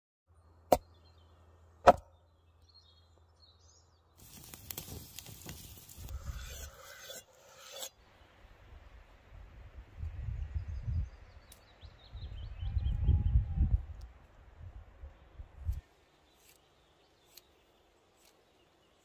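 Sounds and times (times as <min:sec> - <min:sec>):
cleaver chopping on wooden board: 0:01.9 - 0:02.1
campfire crackling and sizzling: 0:04.2 - 0:07.8.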